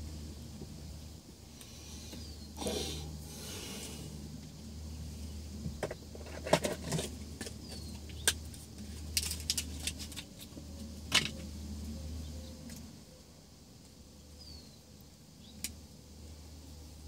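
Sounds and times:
steady low hum: 0.0s - 17.0s
small objects clicking and knocking: 5.8s - 11.4s.

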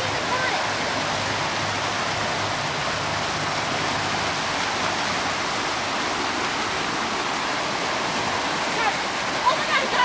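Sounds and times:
creek water rushing: 0.0s - 10.0s.

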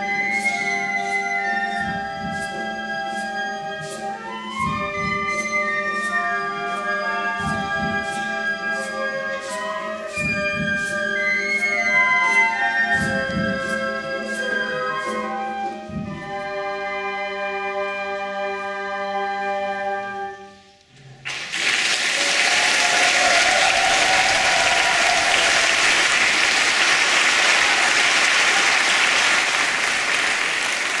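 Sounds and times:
audience applause: 21.2s - 31.0s.

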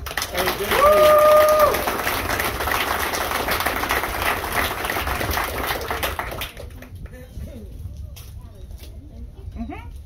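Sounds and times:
crowd applauding: 0.0s - 7.0s
person whooping: 0.7s - 1.8s.

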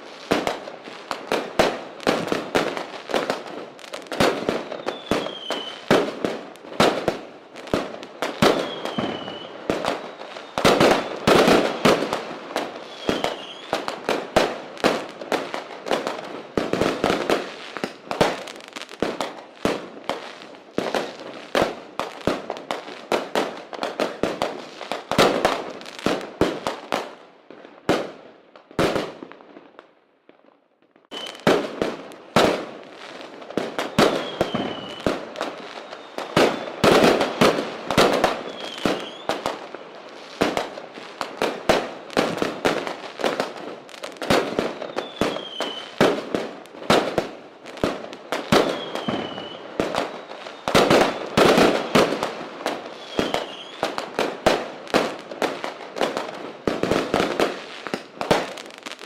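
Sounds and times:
fireworks bangs and crackles: 0.0s - 59.0s
falling firework whistle: 4.4s - 5.9s, 8.4s - 11.7s, 12.8s - 14.0s, 31.1s - 31.6s, 33.7s - 37.4s, 38.0s - 39.5s, 44.6s - 46.0s, 48.5s - 52.2s, 52.9s - 54.0s.

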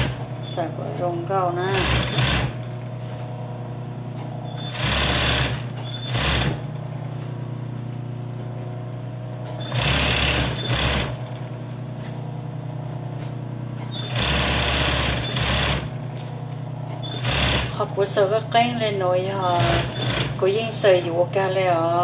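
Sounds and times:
sewing machine motor humming: 0.0s - 2.9s, 3.7s - 7.1s, 9.4s - 11.6s, 13.8s - 18.0s, 19.2s - 21.0s
sewing machine stitching: 1.5s - 2.7s, 4.5s - 6.7s, 9.5s - 11.4s, 13.8s - 15.9s, 17.0s - 17.8s, 19.3s - 20.6s.

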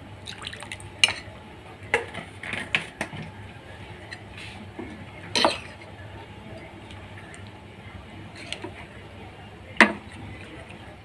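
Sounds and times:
ladle stirring batter in bowl: 8.3s - 9.0s.

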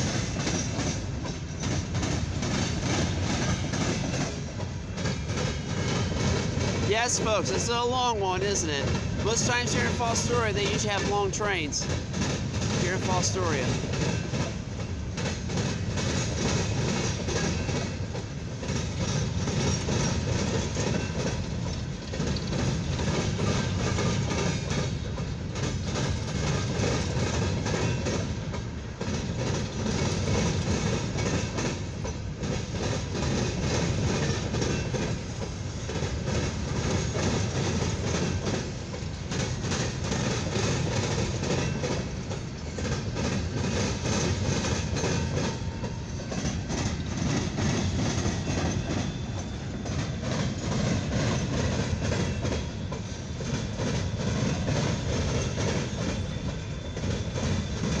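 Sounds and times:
freight cars rumbling and rattling: 0.0s - 58.0s
wheels clacking on rails: 0.0s - 58.0s.

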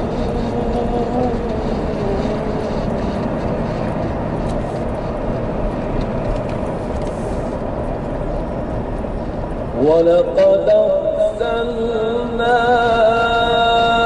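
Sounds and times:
vehicle driving on gravel: 0.0s - 11.0s.

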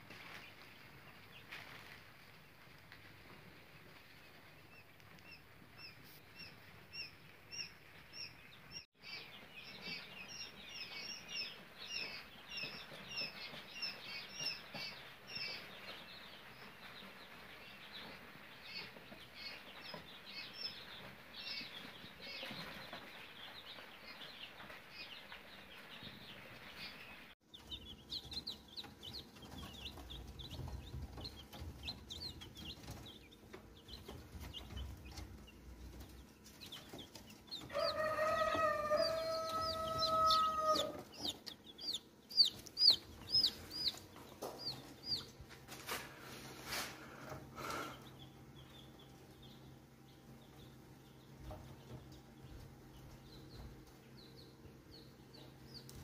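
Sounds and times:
chicks peeping: 0.0s - 56.0s
rooster crowing: 37.7s - 41.2s.

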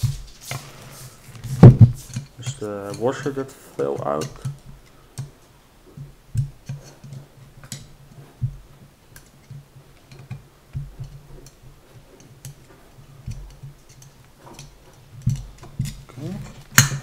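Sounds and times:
dull bumps against table: 1.5s - 2.0s.

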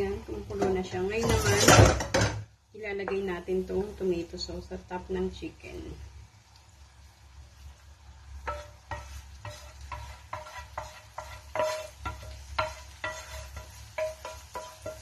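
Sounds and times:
metal saucepan knocks and scrapes: 0.5s - 2.5s, 8.4s - 15.0s.

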